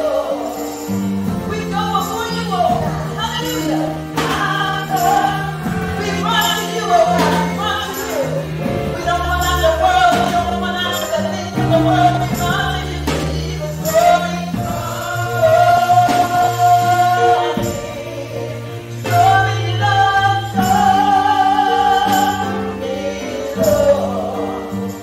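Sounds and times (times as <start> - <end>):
voices singing gospel music: 0.0 - 25.0
held bass line: 1.1 - 25.0.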